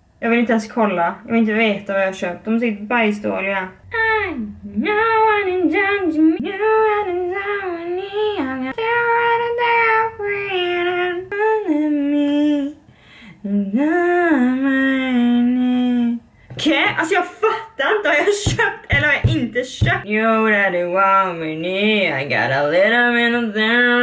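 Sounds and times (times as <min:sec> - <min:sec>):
woman singing unaccompanied: 0:03.8 - 0:21.9.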